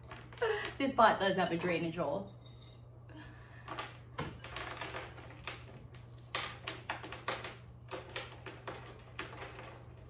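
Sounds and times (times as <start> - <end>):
small rocks clicking and clattering: 3.7 - 10.0.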